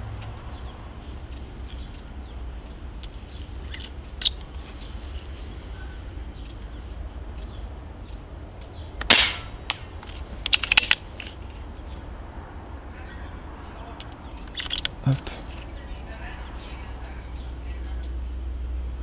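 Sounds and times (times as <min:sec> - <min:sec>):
sharp clicks: 0:03.0 - 0:04.6, 0:09.0 - 0:12.0, 0:14.0 - 0:15.7
suppressed air rifle shot: 0:09.0 - 0:09.9.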